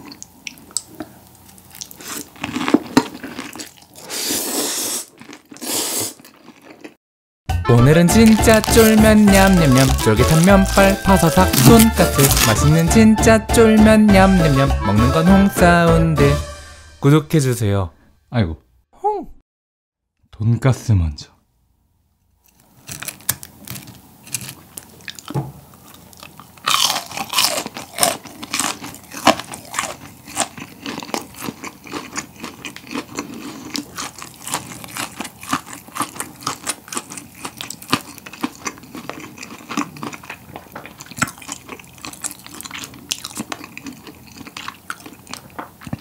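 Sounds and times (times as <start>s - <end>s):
crunchy chewing of fried food: 0.0s - 7.0s, 8.2s - 12.8s, 22.4s - 46.0s
loud bite crunch: 1.6s - 7.0s, 8.2s - 12.8s, 22.5s - 46.0s.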